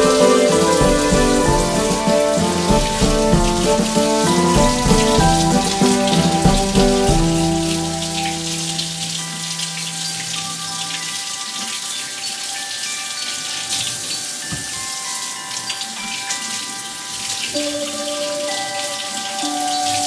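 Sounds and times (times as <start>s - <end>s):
tap water splashing over apple: 0.0s - 9.8s
soft background music: 0.0s - 20.0s.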